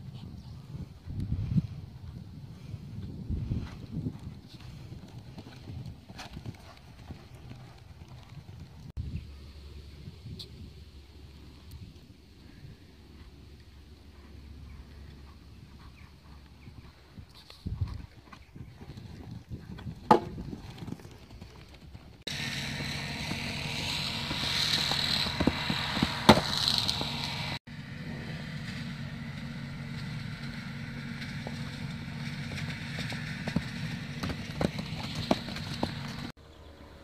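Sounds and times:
pony hoofbeats on sand: 0:03.4 - 0:08.9, 0:14.1 - 0:27.6, 0:31.3 - 0:36.3
steady rushing noise: 0:22.3 - 0:27.6.

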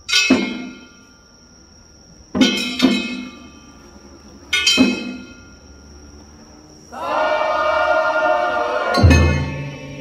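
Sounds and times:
metal percussion clanging: 0:00.0 - 0:01.3, 0:02.3 - 0:05.8, 0:09.0 - 0:09.9.

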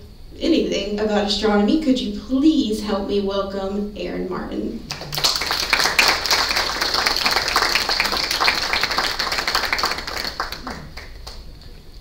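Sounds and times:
audience applauding: 0:04.9 - 0:11.8.

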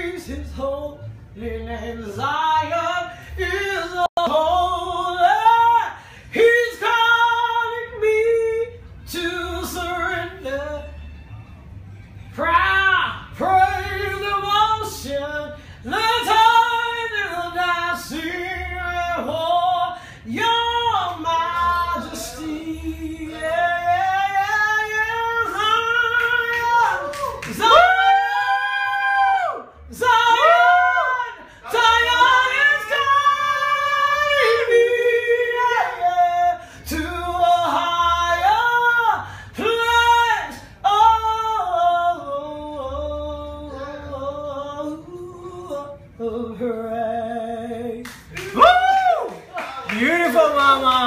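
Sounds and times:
woman singing unaccompanied: 0:00.0 - 0:11.0, 0:12.3 - 0:48.6.

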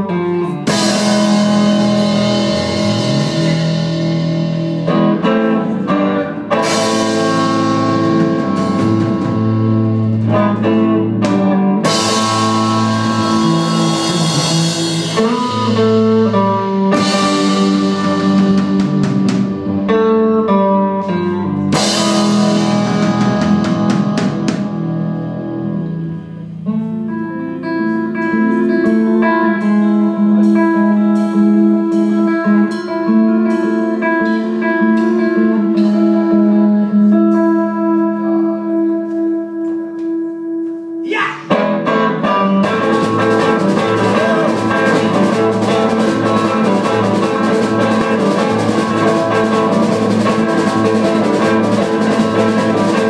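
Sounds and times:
guitar rising slide: 0:00.0 - 0:39.3, 0:40.6 - 0:53.0
electric guitar chords: 0:00.0 - 0:53.0
loud dense drums: 0:00.7 - 0:05.5, 0:06.5 - 0:10.4, 0:11.2 - 0:19.8, 0:21.7 - 0:25.0, 0:42.6 - 0:53.0.

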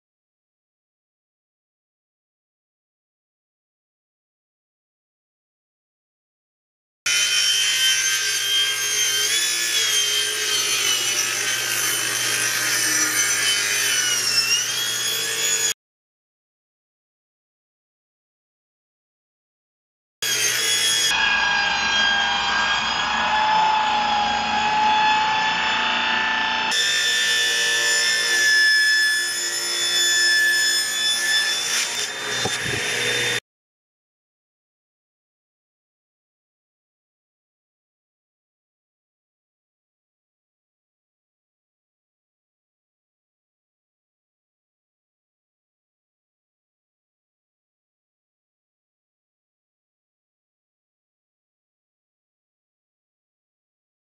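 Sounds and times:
table saw ripping wood: 0:07.1 - 0:15.8, 0:20.2 - 0:33.4.

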